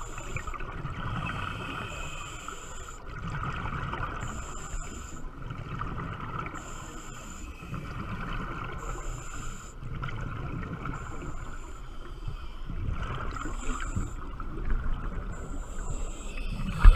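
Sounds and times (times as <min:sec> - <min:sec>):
mid-pitched hum: 0:10.9 - 0:16.9
low underwater rumble: 0:12.7 - 0:16.9.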